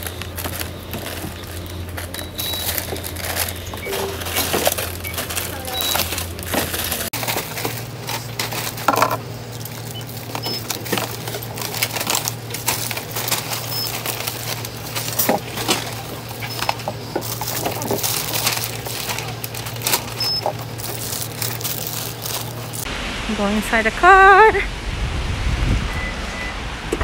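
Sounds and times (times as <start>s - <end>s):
barcode scanner beeps: 0.0s - 6.4s, 9.9s - 10.8s, 13.5s - 15.2s, 15.9s - 19.2s, 19.8s - 21.3s
packets and bags rustling: 0.0s - 22.9s
steady low hum: 0.0s - 25.7s.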